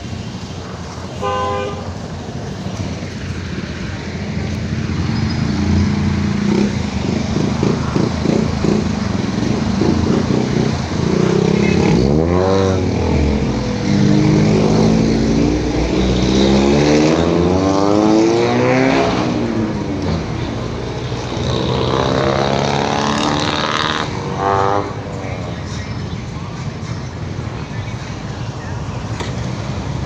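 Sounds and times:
engine passing by: 0.0s - 30.0s
vehicle engines running: 0.0s - 30.0s
engine revving up: 5.0s - 20.3s.

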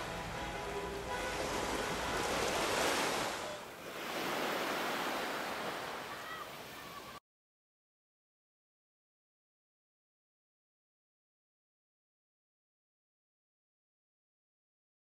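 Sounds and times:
sea waves washing onto beach: 0.0s - 7.2s.

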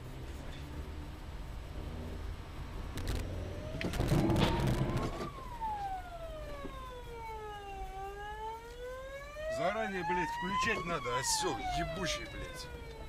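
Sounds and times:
burst of noise and knocks: 3.0s - 5.4s
siren wailing: 3.1s - 13.0s.

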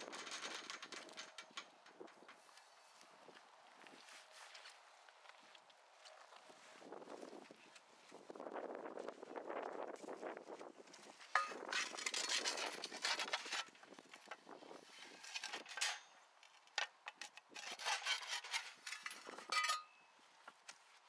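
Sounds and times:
wood scraping wire-mesh cage: 0.0s - 2.8s, 11.4s - 16.2s, 17.1s - 20.0s.

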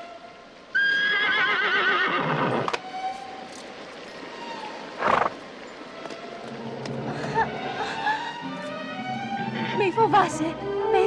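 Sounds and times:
horse whinnying: 0.8s - 2.8s.

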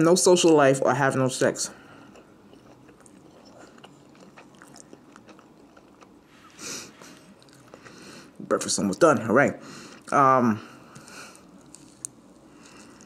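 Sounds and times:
mouth chewing: 2.0s - 8.5s.

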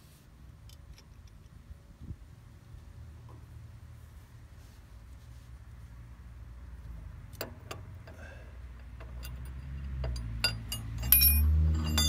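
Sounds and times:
ringing metallic clinks: 9.0s - 12.0s.

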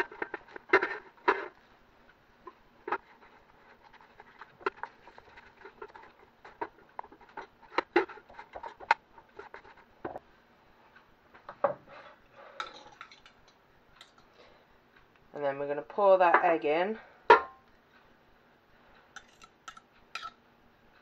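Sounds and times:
food stirred in metal tin: 0.0s - 1.6s, 2.8s - 9.9s, 12.6s - 14.3s, 19.1s - 20.4s.

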